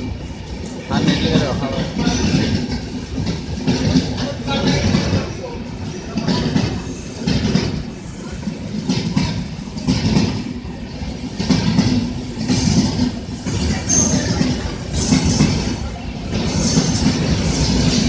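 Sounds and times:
train wheels rumbling on rails: 0.0s - 18.0s
clatter over rail joints: 0.9s - 8.0s, 8.7s - 10.5s, 11.3s - 18.0s.

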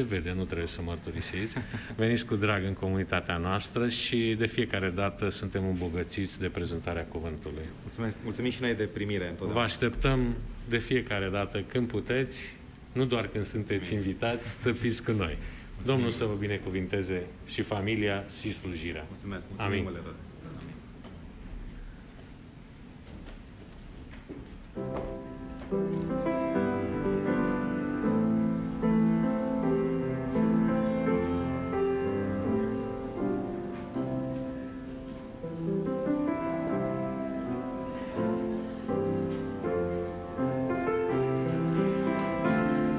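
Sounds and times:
grand piano playing: 24.7s - 42.9s.

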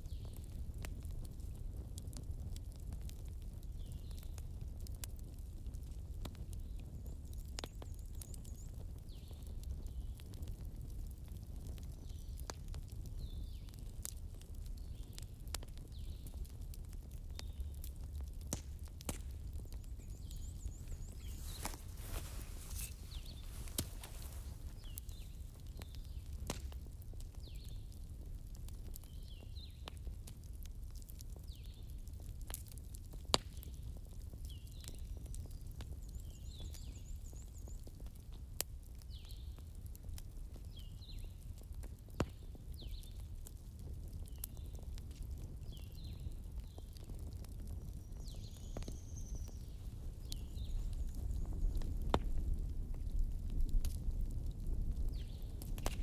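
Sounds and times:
small birds chirping: 6.4s - 10.5s, 11.6s - 30.2s, 33.5s - 38.3s, 38.9s - 39.8s, 40.5s - 43.5s, 44.1s - 52.5s, 55.0s - 56.0s.

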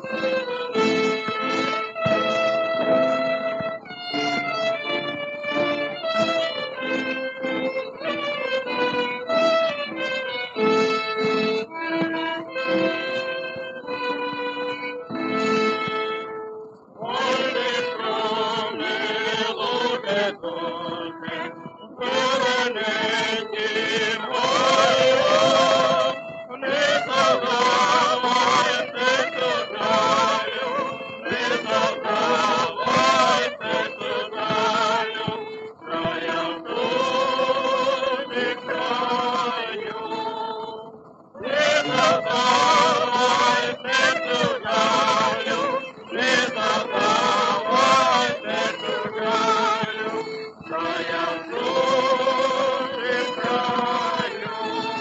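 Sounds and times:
small orchestra: 0.0s - 55.0s
vocal quartet singing in harmony: 17.0s - 55.0s.

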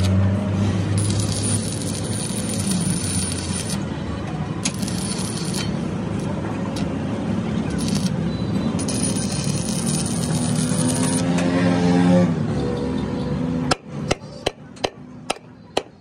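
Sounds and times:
welding arc crackling: 1.0s - 3.8s, 4.6s - 5.8s, 7.7s - 8.2s, 8.8s - 11.3s.

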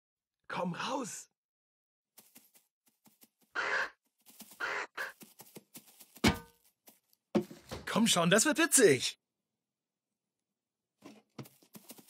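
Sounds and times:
cartoon ostrich squawking: 3.6s - 4.0s, 4.6s - 5.2s.

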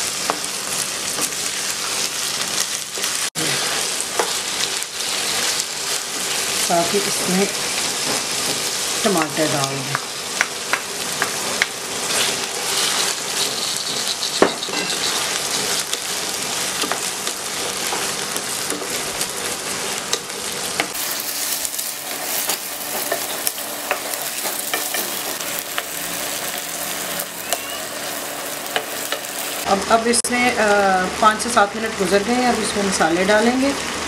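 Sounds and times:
food sizzling in hot oil: 0.0s - 34.0s
spatula scraping a pan: 12.0s - 16.0s.

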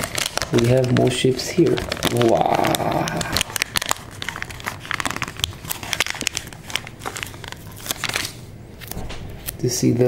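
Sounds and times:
plastic sheet crinkling: 0.0s - 10.0s.

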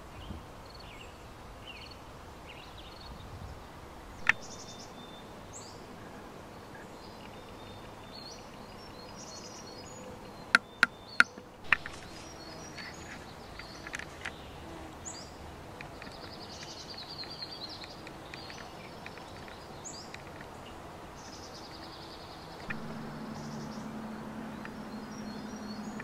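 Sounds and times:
background hiss: 0.0s - 26.0s
small birds chirping: 0.0s - 26.0s
sharp clicks: 4.2s - 4.5s.

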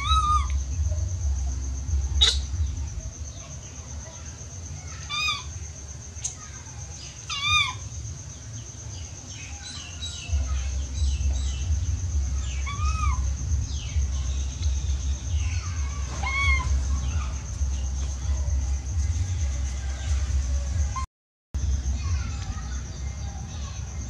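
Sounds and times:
low rumble: 0.0s - 3.6s, 10.3s - 21.0s, 21.6s - 24.0s
baby monkey coo calls: 0.0s - 8.0s, 8.6s - 21.0s.

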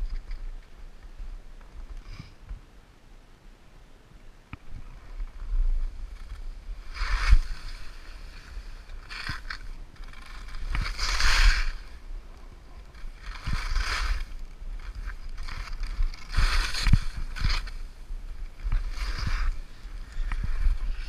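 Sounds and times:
wind rumble on microphone: 0.0s - 3.5s, 4.2s - 21.0s
skis hissing across snow: 6.2s - 21.0s.

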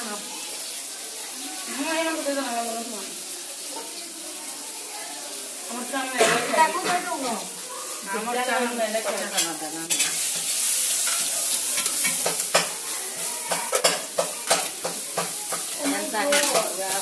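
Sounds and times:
metal spoon clinking on pots: 9.0s - 17.0s.

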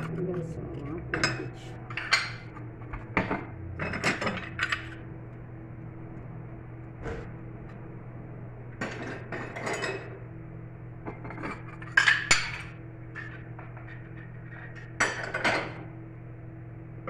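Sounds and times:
steady low hum: 0.0s - 17.0s
dishes and cups clinking: 1.1s - 4.9s, 8.8s - 10.2s, 11.1s - 15.9s.

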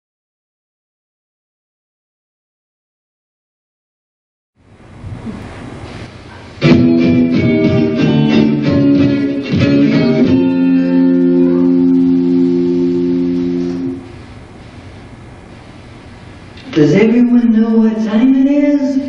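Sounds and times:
plucked guitar riff: 6.6s - 14.1s.

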